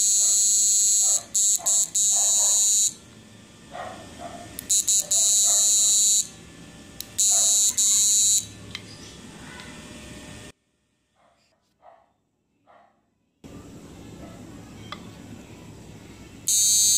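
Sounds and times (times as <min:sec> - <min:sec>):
high-pitched electronic buzzer: 0:00.0 - 0:03.0, 0:04.6 - 0:06.4, 0:07.0 - 0:08.6, 0:16.4 - 0:16.9.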